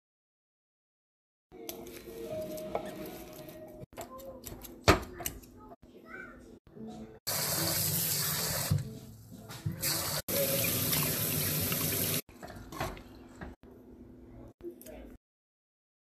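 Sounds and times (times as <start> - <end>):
tap water running: 7.3 - 8.9, 9.6 - 13.0.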